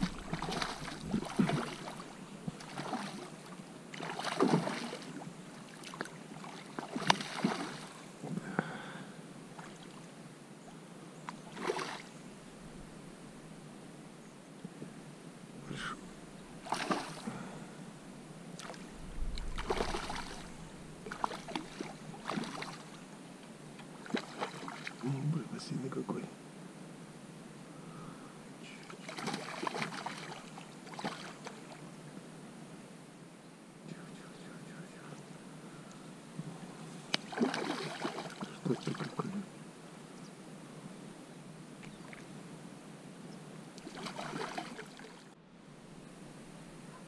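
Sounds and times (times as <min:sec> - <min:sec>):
fish thrashing and splashing water: 0:00.0 - 0:03.3, 0:04.0 - 0:05.2, 0:05.9 - 0:07.9, 0:16.6 - 0:17.3, 0:18.6 - 0:23.0, 0:29.1 - 0:31.3, 0:37.2 - 0:39.1, 0:43.8 - 0:45.1.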